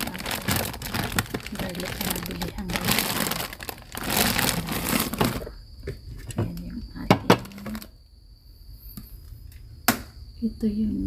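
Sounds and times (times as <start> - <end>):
plastic bag crinkling: 0.0 - 5.6, 7.3 - 7.9
items knocking on fridge shelf: 3.9 - 7.9.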